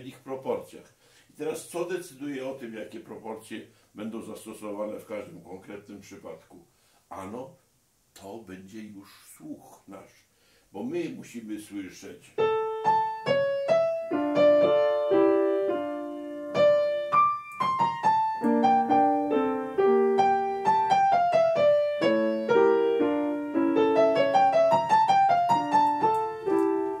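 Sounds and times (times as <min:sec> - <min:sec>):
grand piano melody with chords: 0:12.4 - 0:27.0.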